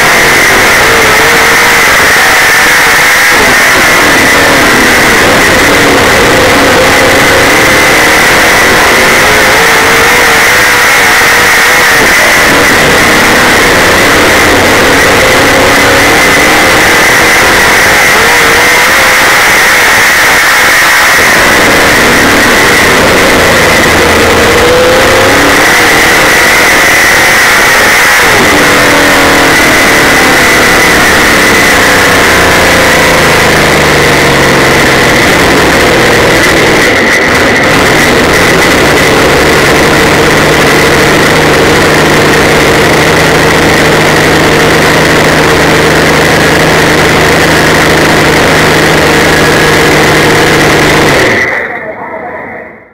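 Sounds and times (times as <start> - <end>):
race car engine revving: 0.0 - 52.9.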